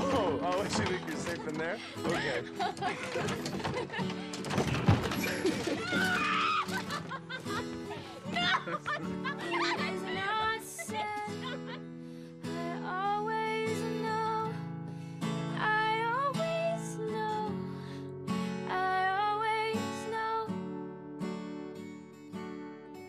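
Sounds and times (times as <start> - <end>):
acoustic guitar strumming: 0.0 - 23.0
woman singing: 9.4 - 11.8, 12.4 - 14.6, 15.5 - 18.0, 18.6 - 20.6.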